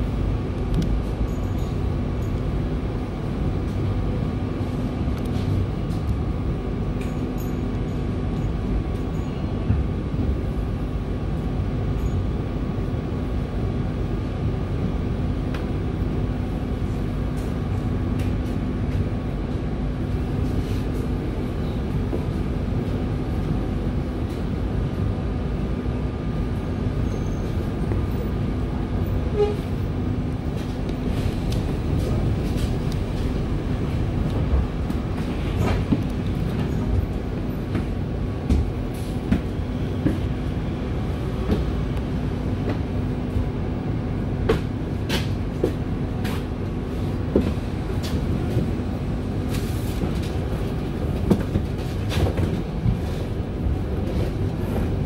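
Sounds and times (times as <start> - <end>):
bus engine low rumble and hum: 0.0 - 55.0.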